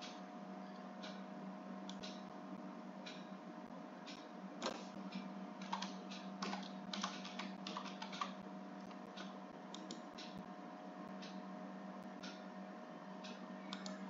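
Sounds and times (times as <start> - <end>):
steady low hum: 0.0 - 14.0
computer keyboard typing: 5.6 - 8.4.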